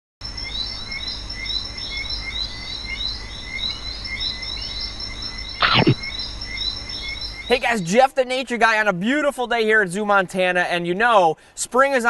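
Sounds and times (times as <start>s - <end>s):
high-pitched animal chirping: 5.6s - 6.2s.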